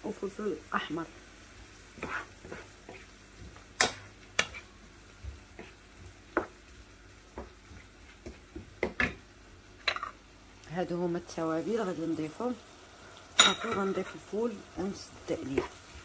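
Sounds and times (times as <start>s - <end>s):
kitchen clicks and taps: 8.2s - 9.2s.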